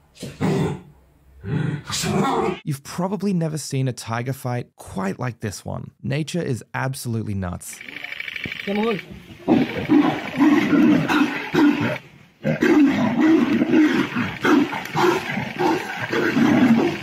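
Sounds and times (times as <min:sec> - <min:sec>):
tigers snarling and roaring: 0:00.2 - 0:02.6, 0:07.8 - 0:17.0.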